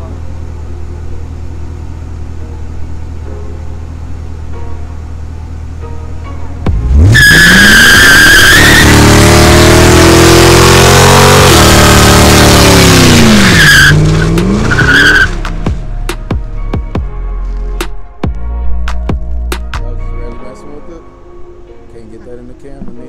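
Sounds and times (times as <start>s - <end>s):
car engine revving: 6.7s - 16.1s
tyre squealing: 6.9s - 10.4s, 11.0s - 15.4s.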